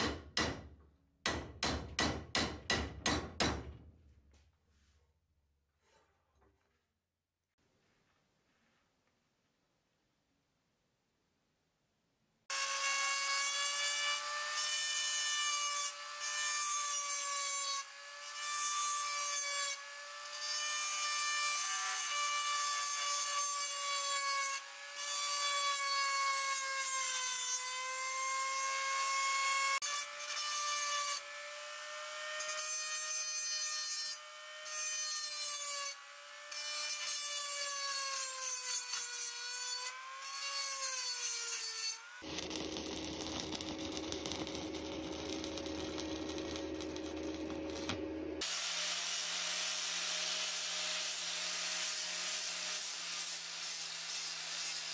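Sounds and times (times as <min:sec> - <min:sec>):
rotary tool grinding steel: 0:36.5 - 0:54.9.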